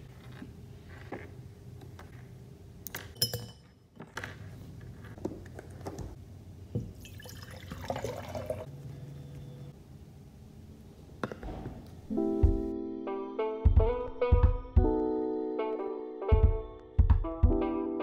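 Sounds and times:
sharp glass clink: 0:03.2 - 0:03.8
water poured into glass jar: 0:07.0 - 0:08.7.

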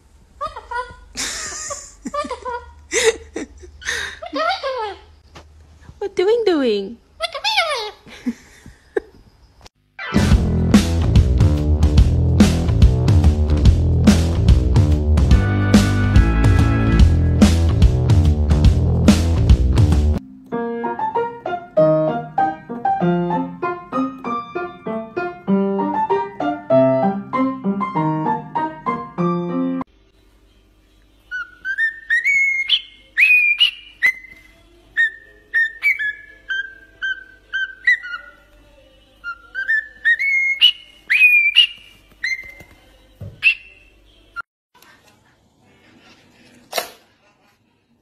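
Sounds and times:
cockatiel whistling a melody: 0:31.3 - 0:34.4, 0:35.0 - 0:38.4, 0:39.2 - 0:42.7, 0:43.4 - 0:44.0.

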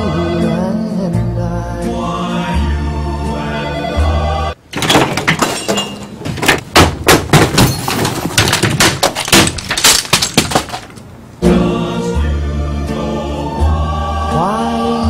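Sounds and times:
office items crashing to the floor: 0:04.7 - 0:11.0.

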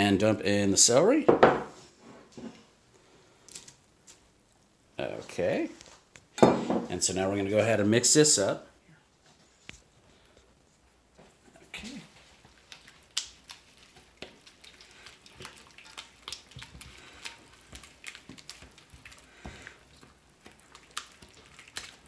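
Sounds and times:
spatula stirring wet mix: 0:11.3 - 0:22.0
squishing and scraping in bowl: 0:11.3 - 0:22.0.

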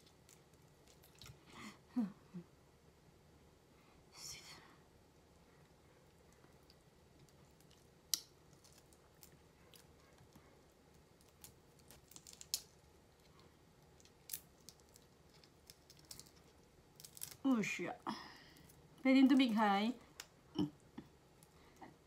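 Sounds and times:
shrimp shell clicks and crackles: 0:06.6 - 0:09.9, 0:10.9 - 0:17.5.

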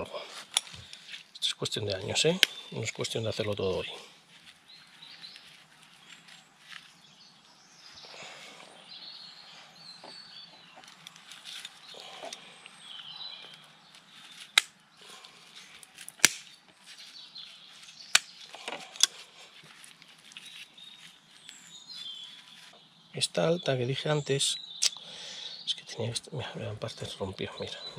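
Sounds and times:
birds chirping: 0:00.0 - 0:27.9
pruning shears snipping: 0:13.5 - 0:20.8.

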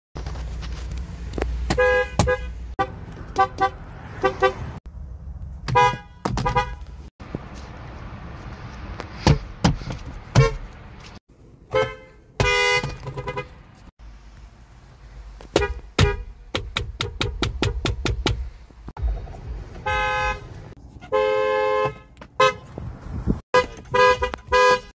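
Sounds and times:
car horn honks: 0:01.7 - 0:04.8, 0:05.7 - 0:06.9, 0:10.3 - 0:10.7, 0:11.7 - 0:13.6, 0:15.5 - 0:16.4, 0:19.8 - 0:22.8, 0:23.5 - 0:24.9.

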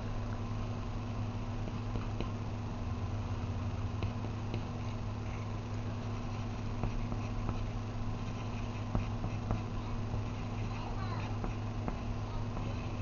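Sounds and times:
low background hum: 0:00.0 - 0:13.0
pencil ticking on paper: 0:04.0 - 0:13.0.

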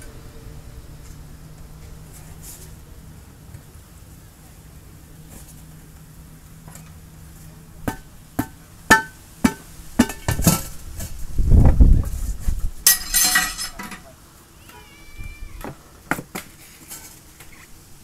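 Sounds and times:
tools clattering onto metal bench: 0:12.9 - 0:14.1.

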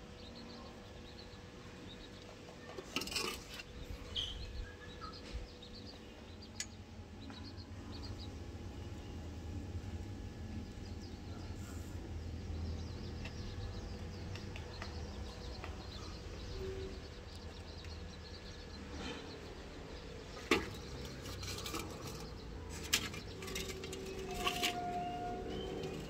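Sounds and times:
low outdoor rumble: 0:00.0 - 0:26.0.

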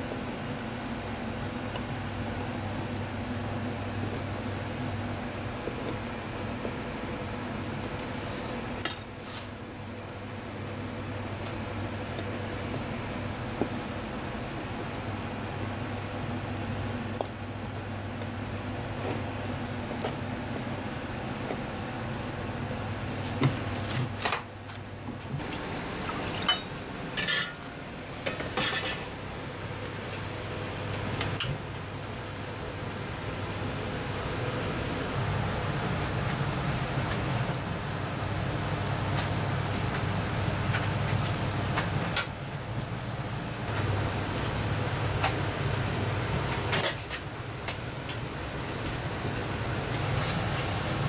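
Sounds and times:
steady low hum: 0:00.0 - 0:51.0
cookware clatter: 0:26.2 - 0:27.6.

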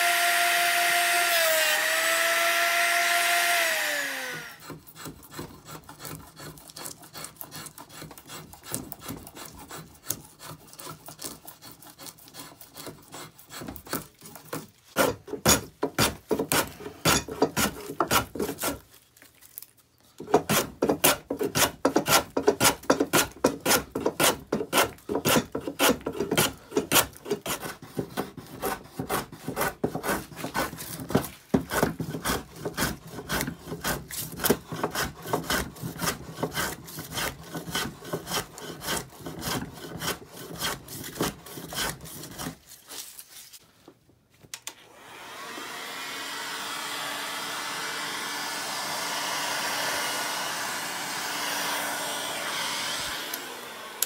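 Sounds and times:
hand file rasping on wood: 0:03.1 - 0:18.9, 0:20.2 - 0:43.0.

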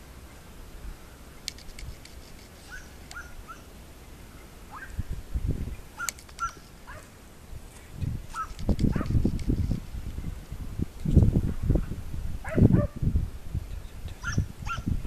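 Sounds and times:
sharp clicks: 0:01.4 - 0:03.3, 0:06.0 - 0:06.7, 0:08.3 - 0:09.6
dogs yelping: 0:02.6 - 0:03.7, 0:04.7 - 0:05.0, 0:06.0 - 0:07.1, 0:08.3 - 0:09.2, 0:12.4 - 0:13.0, 0:14.2 - 0:14.9
low rumble on microphone: 0:04.2 - 0:06.0, 0:06.8 - 0:15.0.

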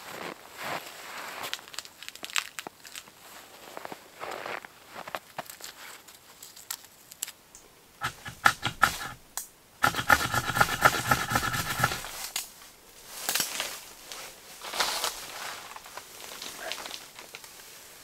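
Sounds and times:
dry twigs snapping: 0:01.6 - 0:03.0.

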